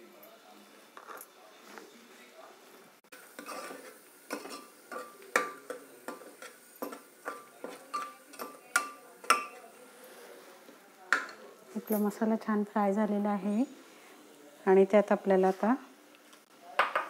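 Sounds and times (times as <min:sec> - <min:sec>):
metal spoon scraping a pot: 0:03.4 - 0:09.6.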